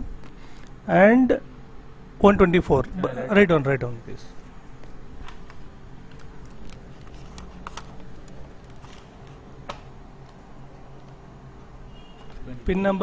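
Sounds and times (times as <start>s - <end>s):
low electrical hum: 0.0s - 13.0s
faint clicks and taps: 4.8s - 12.5s.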